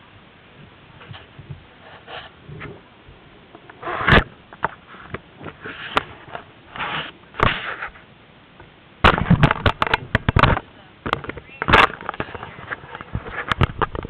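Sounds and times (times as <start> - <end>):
clothing rustling against microphone: 0.6 - 3.0, 3.6 - 8.1.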